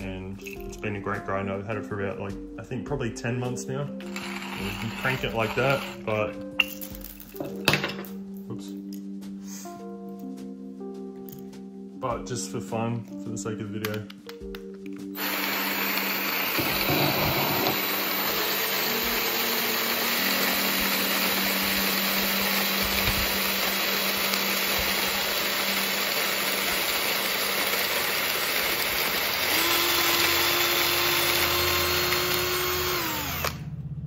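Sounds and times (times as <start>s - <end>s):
coffee beans grinding: 4.0s - 6.2s, 15.1s - 33.6s
drill motor whining: 4.0s - 6.2s, 15.2s - 33.6s.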